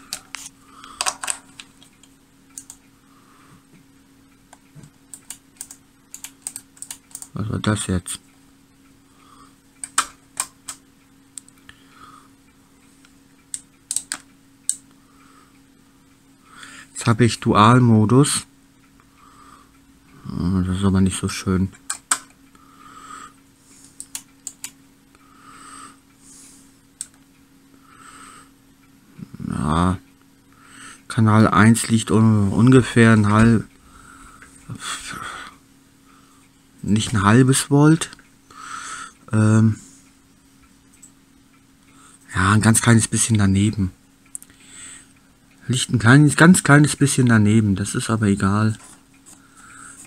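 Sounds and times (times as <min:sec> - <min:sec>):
rotary switches clicking: 0:00.0 - 0:02.9, 0:04.4 - 0:07.4, 0:09.8 - 0:11.8, 0:13.4 - 0:15.0, 0:21.7 - 0:22.4, 0:23.8 - 0:24.8
steady low hum: 0:00.0 - 0:50.0
soft breaths: 0:02.8 - 0:03.8, 0:14.9 - 0:17.0, 0:22.5 - 0:24.2, 0:25.1 - 0:27.0, 0:33.7 - 0:36.7, 0:38.4 - 0:41.1, 0:44.4 - 0:45.6, 0:48.8 - 0:50.0.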